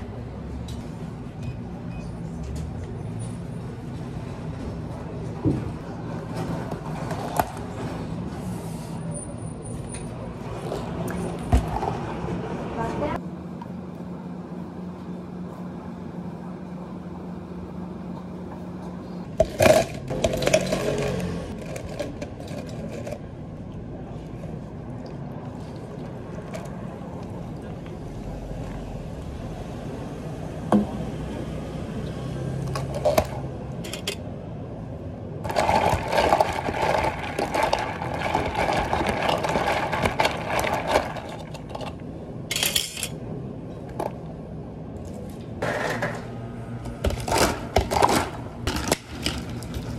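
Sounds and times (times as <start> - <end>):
cafe equipment hum: 0.0 - 49.9
ice clattering into plastic cup: 19.4 - 23.2, 35.5 - 41.9
ice rattling in cup: 19.4 - 23.2, 35.4 - 42.0.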